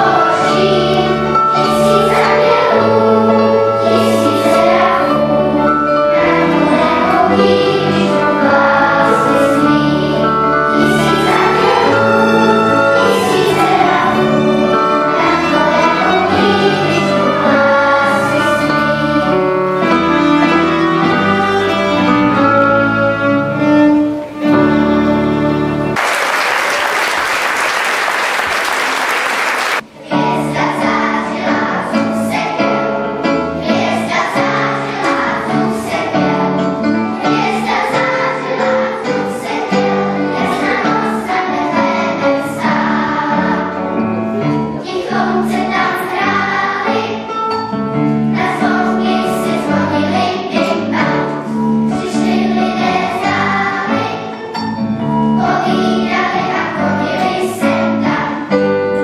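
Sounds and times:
string music: 0:00.0 - 0:26.0, 0:29.8 - 0:59.0
violin and guitar accompaniment: 0:00.0 - 0:26.0, 0:33.8 - 0:59.0
children's choir singing: 0:00.0 - 0:59.0
applause: 0:26.0 - 0:29.8.

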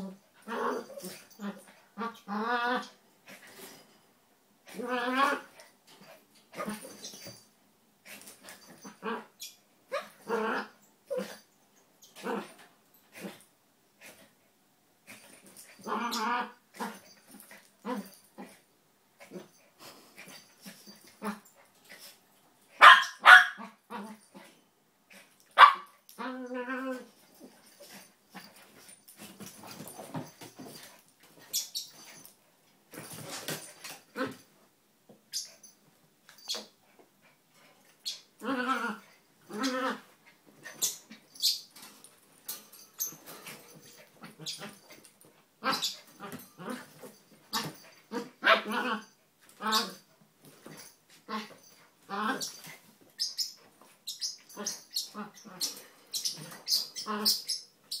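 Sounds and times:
dogs growling: 0:00.0 - 0:03.4
dogs barking: 0:22.8 - 0:23.7, 0:25.6 - 0:25.9.

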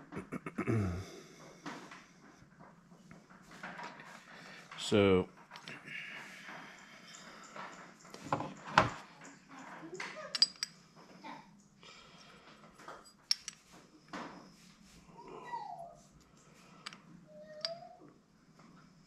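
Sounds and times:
light metal clicks and clinks: 0:06.8 - 0:10.8, 0:12.2 - 0:13.6.

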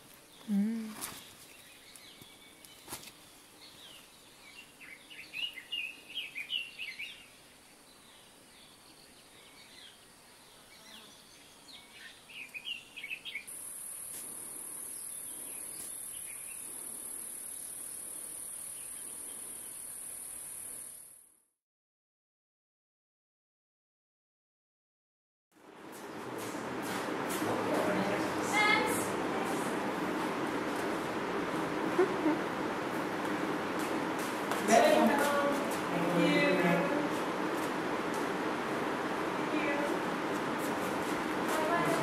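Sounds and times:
birds chirping: 0:00.2 - 0:13.6, 0:14.8 - 0:20.1
high-pitched insect drone: 0:13.5 - 0:21.2.

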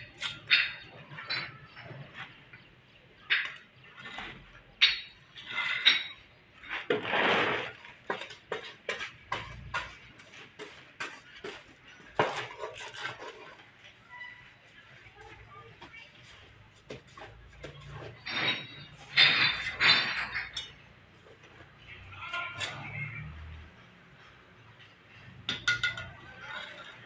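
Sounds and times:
trowel clinking on bricks: 0:00.0 - 0:14.0, 0:16.9 - 0:23.3, 0:25.4 - 0:27.0
trowel scraping: 0:03.4 - 0:14.5.

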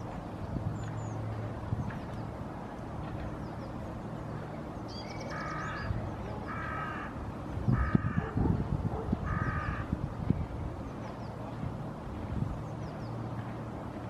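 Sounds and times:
crow cawing: 0:06.5 - 0:07.1, 0:07.8 - 0:08.2, 0:09.3 - 0:09.9.

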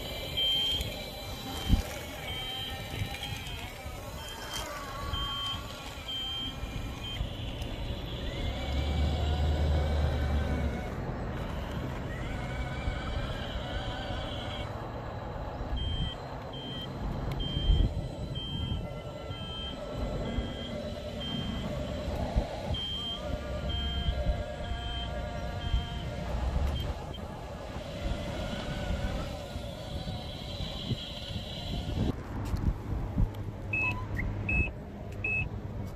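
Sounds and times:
reversing alarm beeps: 0:00.0 - 0:03.7, 0:05.0 - 0:07.4, 0:15.7 - 0:27.2, 0:33.7 - 0:35.5
electric motors whining: 0:00.0 - 0:32.2.

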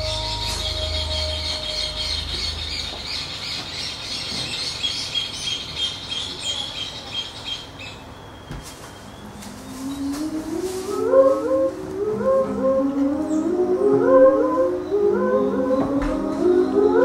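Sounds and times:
low musical drone: 0:00.0 - 0:03.6, 0:09.2 - 0:17.0
high-pitched bird-like chirping: 0:00.0 - 0:17.0.

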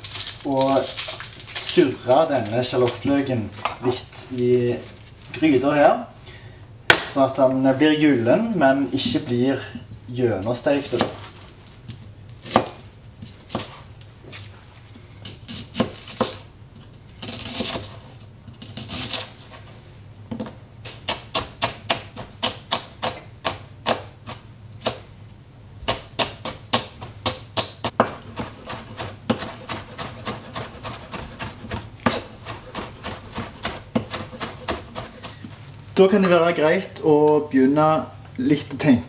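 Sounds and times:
knife chopping on cutting board: 0:10.9 - 0:11.2, 0:12.5 - 0:12.8, 0:15.2 - 0:16.4, 0:17.2 - 0:18.0, 0:20.3 - 0:25.0, 0:25.8 - 0:35.6.

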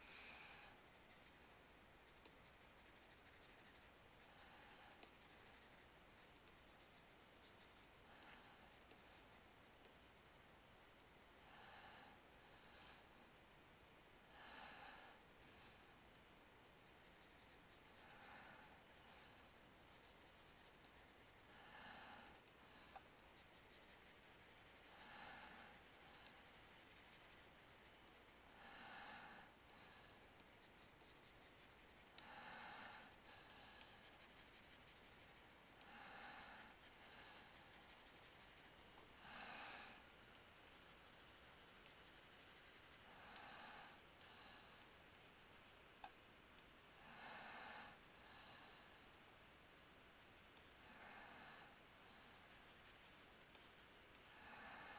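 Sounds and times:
person breathing through nose: 0:24.2 - 0:27.1.

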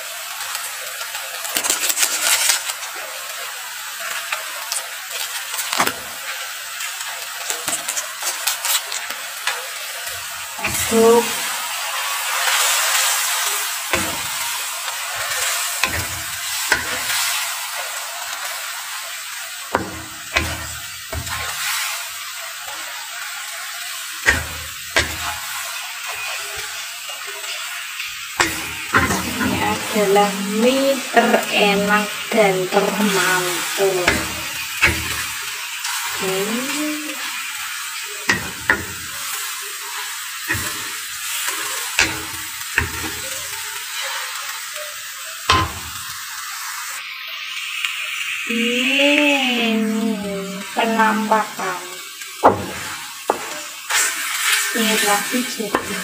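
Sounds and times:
noodles sizzling in a wok: 0:00.0 - 0:56.0
spatula stirring noodles: 0:10.0 - 0:30.1, 0:32.7 - 0:46.2, 0:52.4 - 0:56.0
spatula knocking on pan: 0:13.9 - 0:14.5, 0:15.2 - 0:17.2, 0:19.7 - 0:21.7, 0:24.2 - 0:25.4, 0:28.4 - 0:29.9, 0:34.0 - 0:35.5, 0:38.3 - 0:39.3, 0:42.0 - 0:43.4, 0:45.5 - 0:46.1, 0:52.4 - 0:53.6.

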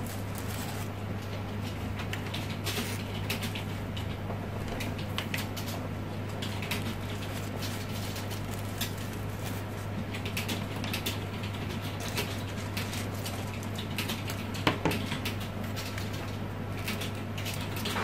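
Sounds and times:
crepe paper crinkling: 0:00.0 - 0:03.7, 0:04.7 - 0:18.0
steady low hum: 0:00.0 - 0:18.0.

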